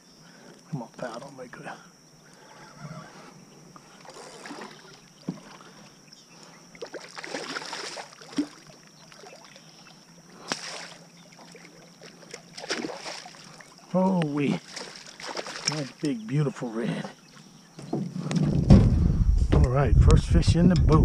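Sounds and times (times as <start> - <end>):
fish splashing at the surface: 6.8 - 9.6, 10.4 - 13.8, 14.6 - 16.0.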